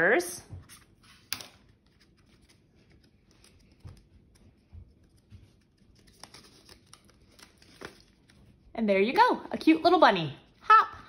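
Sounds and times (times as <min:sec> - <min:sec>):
paper rustling: 0:00.6 - 0:08.6.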